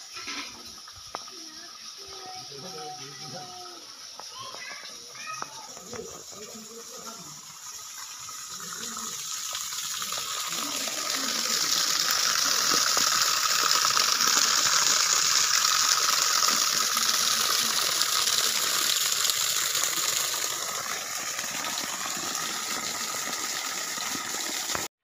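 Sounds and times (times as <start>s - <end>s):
water gushing from hose: 0.0s - 24.9s
water splashing on earth: 5.2s - 24.9s.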